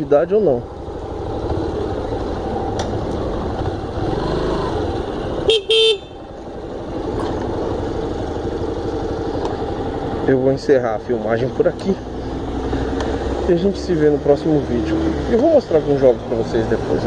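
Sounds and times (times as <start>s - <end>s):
motorcycle engine running: 0.0s - 14.6s
motorcycle horn toots: 5.4s - 6.3s.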